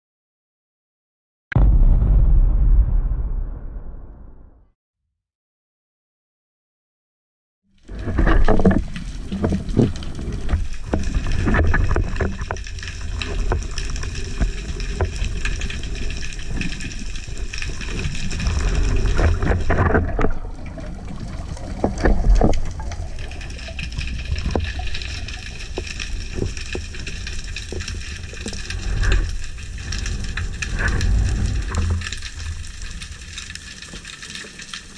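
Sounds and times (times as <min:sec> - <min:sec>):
underwater clicks and crackles: 0:07.8 - 0:34.9
underwater water rushing: 0:07.9 - 0:34.9.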